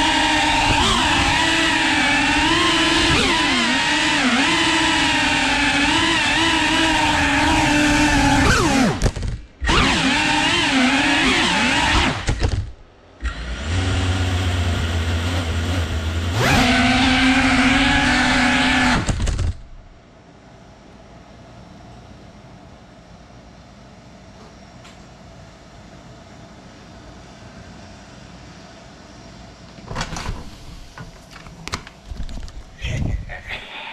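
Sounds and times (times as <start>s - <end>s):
drone propellers whining: 0.0s - 12.6s, 13.2s - 19.7s.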